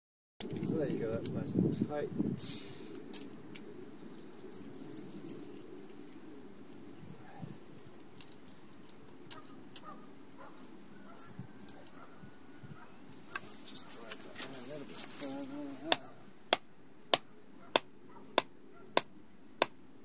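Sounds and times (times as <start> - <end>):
faint bird chirps: 9.4 - 13.0.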